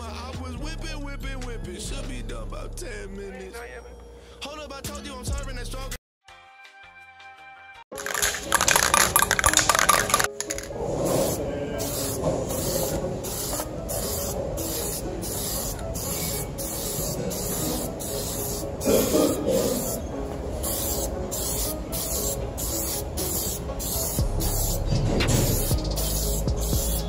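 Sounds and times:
aerosol spray can hissing: 0:08.0 - 0:20.0, 0:20.6 - 0:27.0.

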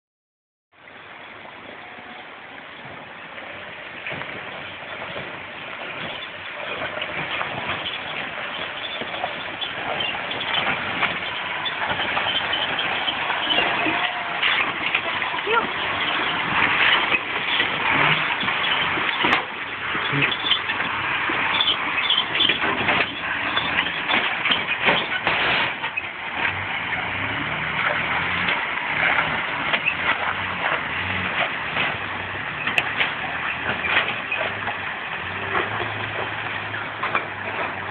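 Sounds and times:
vehicle engine crawling: 0:00.8 - 0:37.9
knocks and rattles: 0:04.0 - 0:37.9
tyres on loose stone: 0:05.9 - 0:26.6.

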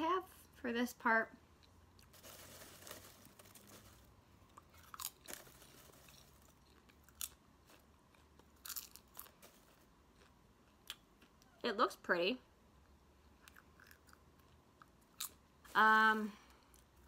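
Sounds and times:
person chewing popcorn: 0:01.6 - 0:11.6, 0:13.2 - 0:15.4, 0:16.5 - 0:17.0.

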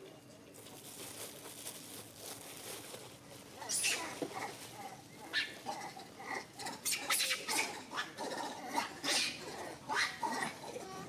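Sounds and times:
monkeys calling: 0:03.6 - 0:11.0.

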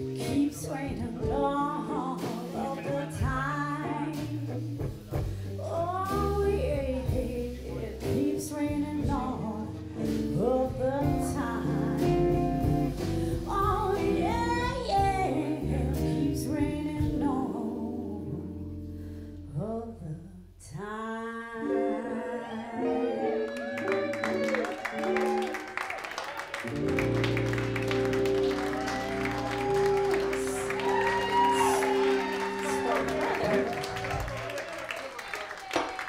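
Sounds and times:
woman singing: 0:00.0 - 0:05.0, 0:05.6 - 0:18.7, 0:19.4 - 0:24.2, 0:28.8 - 0:34.2
drum kit: 0:00.0 - 0:19.0, 0:26.4 - 0:34.6
electric guitar: 0:00.0 - 0:19.7, 0:21.5 - 0:34.7
electric bass: 0:00.0 - 0:21.0, 0:26.7 - 0:34.4.

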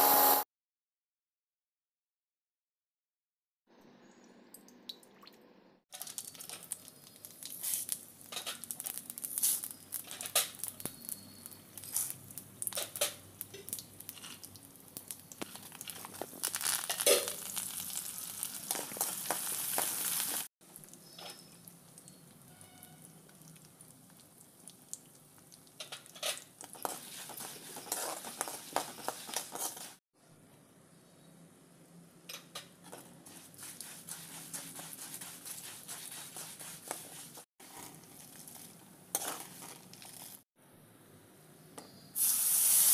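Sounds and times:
spices sizzling and popping in oil: 0:04.6 - 0:30.0, 0:32.3 - 0:40.4, 0:41.7 - 0:42.9
metal spoon scraping a pan: 0:25.8 - 0:30.0, 0:39.1 - 0:40.3.

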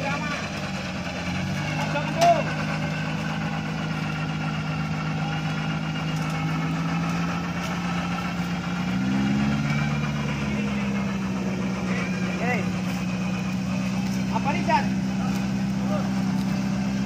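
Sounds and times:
engine running at low revs: 0:00.0 - 0:17.0.

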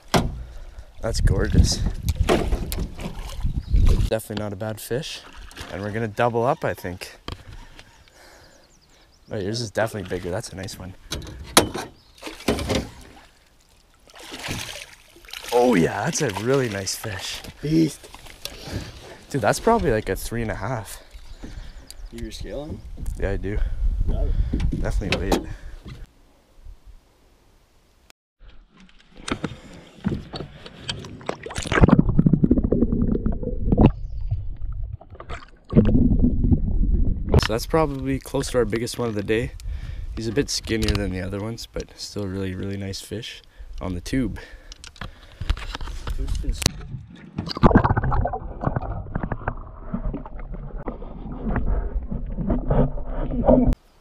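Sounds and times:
water splashing: 0:00.0 - 0:04.2, 0:12.2 - 0:21.2, 0:28.7 - 0:36.4, 0:46.4 - 0:53.8
small splashes and knocks: 0:01.4 - 0:04.4, 0:05.2 - 0:06.0, 0:11.9 - 0:20.0
underwater rumble: 0:30.5 - 0:37.5, 0:46.4 - 0:53.8.

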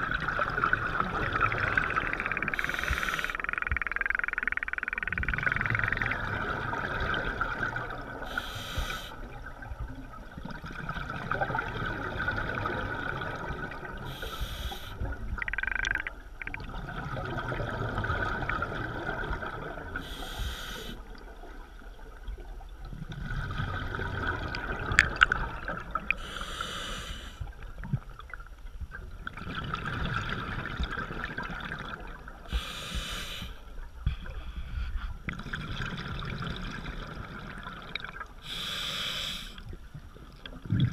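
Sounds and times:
underwater bubbling: 0:00.0 - 0:40.9
regulator breathing hiss: 0:02.6 - 0:03.4, 0:08.3 - 0:09.2, 0:14.1 - 0:15.1, 0:20.0 - 0:21.0, 0:26.2 - 0:27.5, 0:32.5 - 0:33.6, 0:38.4 - 0:39.6.

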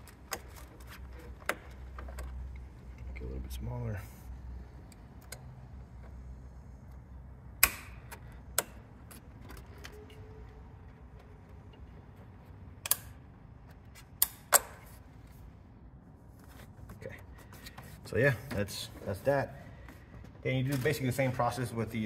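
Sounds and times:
metallic clicks of hose clamp: 0:04.9 - 0:06.2, 0:12.8 - 0:14.9.

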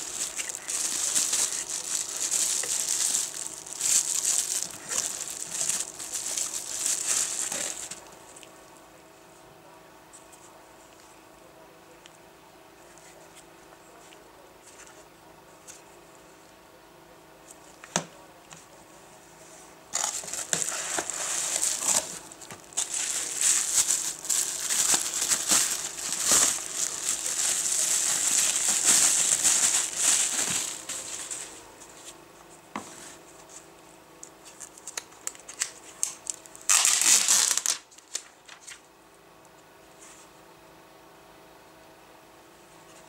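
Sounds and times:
bubble wrap crinkling: 0:00.0 - 0:08.5, 0:19.9 - 0:32.1, 0:34.4 - 0:38.8.

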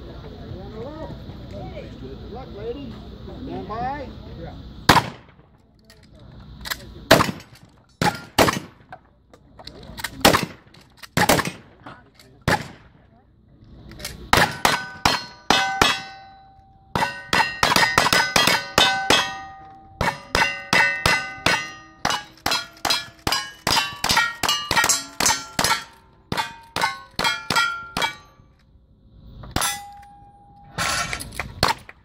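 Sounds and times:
gunshots: 0:04.9 - 0:05.4, 0:07.1 - 0:08.9, 0:10.2 - 0:11.8, 0:12.4 - 0:13.0, 0:14.3 - 0:16.2
steel target clanging: 0:06.6 - 0:08.8, 0:14.0 - 0:28.6, 0:29.4 - 0:32.0.

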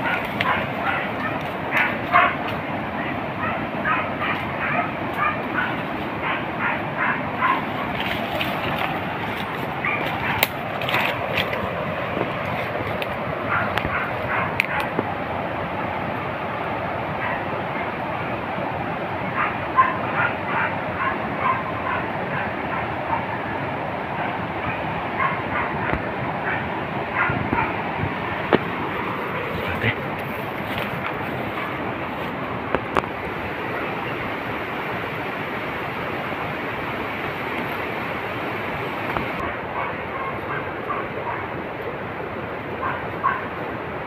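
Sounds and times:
dogs barking: 0:00.0 - 0:15.0, 0:17.0 - 0:18.4, 0:19.2 - 0:32.4, 0:38.6 - 0:41.8, 0:42.6 - 0:43.7
steady rushing noise: 0:00.0 - 0:44.0.

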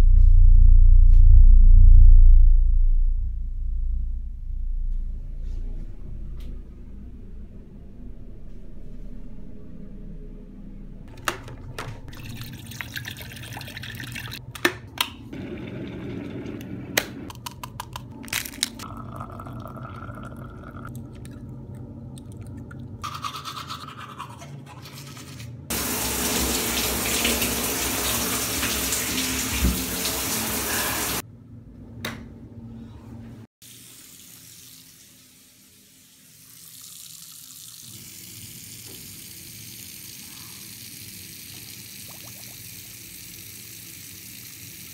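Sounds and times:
low room hum: 0:00.0 - 0:30.3
water running from tap: 0:11.1 - 0:14.4, 0:25.7 - 0:31.2, 0:33.6 - 0:44.9
teeth being brushed: 0:23.1 - 0:25.4.

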